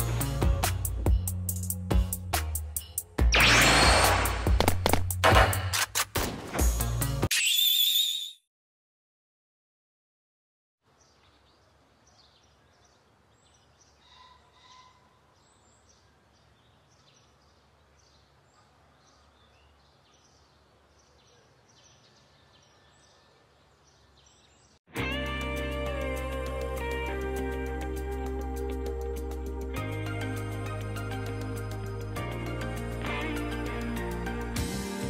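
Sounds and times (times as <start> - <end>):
high bird chirps: 7.3 - 8.5
faint nature ambience: 10.8 - 24.9.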